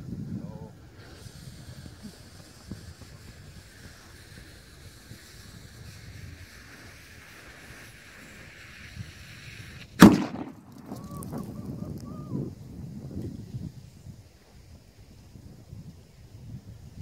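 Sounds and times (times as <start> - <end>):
fuse hissing: 0.0 - 10.9
loud firework bang: 10.0 - 11.5.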